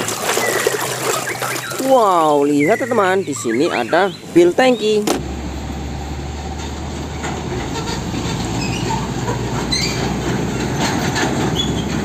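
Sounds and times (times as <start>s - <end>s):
truck driving past: 5.2s - 12.0s.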